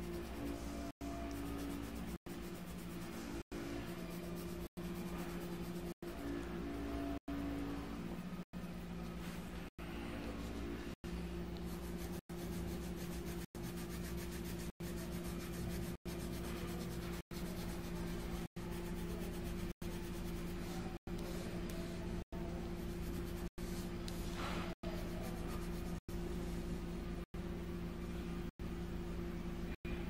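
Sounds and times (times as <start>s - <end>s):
pencil scratching on paper: 0.0s - 6.4s, 11.6s - 21.0s, 22.7s - 26.0s
steady low hum: 0.0s - 30.0s.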